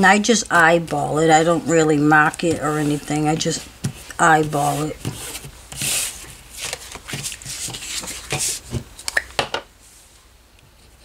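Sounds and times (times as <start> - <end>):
cardstock sliding and rustling: 2.2 - 8.9.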